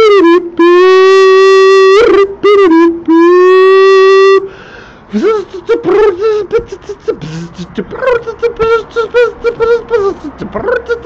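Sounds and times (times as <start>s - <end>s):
person imitating bird calls: 0.0s - 11.0s
choppy chattering sounds: 5.2s - 11.0s.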